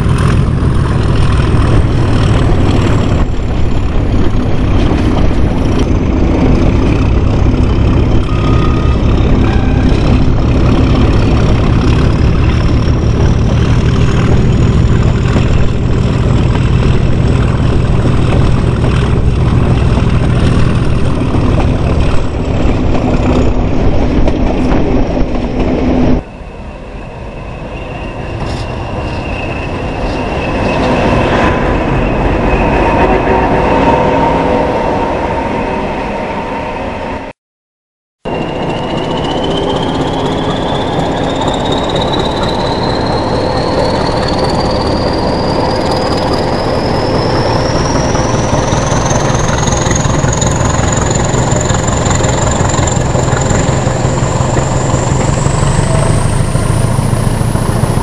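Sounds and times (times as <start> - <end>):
diesel locomotive engine rumbling: 0.0 - 37.4, 38.2 - 58.0
high-pitched tone over hum: 7.2 - 18.6, 38.3 - 58.0.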